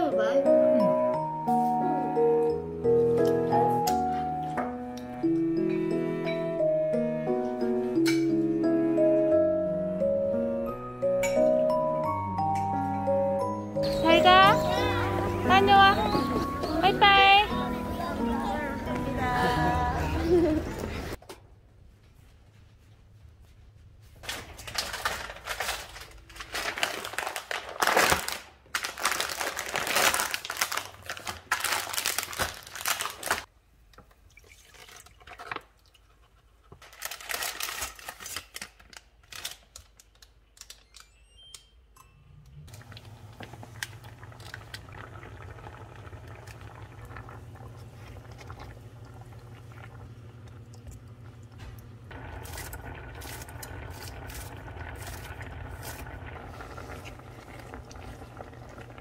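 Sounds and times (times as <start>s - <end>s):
plastic packaging crinkling: 24.2s - 33.5s, 36.8s - 41.2s, 42.8s - 45.1s
low steady hum: 42.0s - 59.0s
liquid pouring into a pot: 42.8s - 59.0s.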